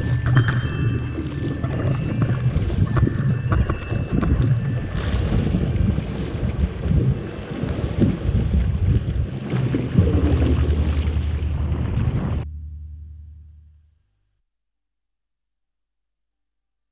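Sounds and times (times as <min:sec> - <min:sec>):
wind buffeting microphone: 0:00.0 - 0:12.5
water splashing: 0:00.0 - 0:13.0
steady low hum: 0:09.9 - 0:14.1.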